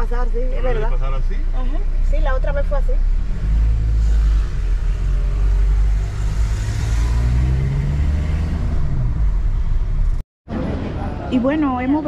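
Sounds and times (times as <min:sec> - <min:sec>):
vehicle engine and road noise: 0:00.0 - 0:12.0.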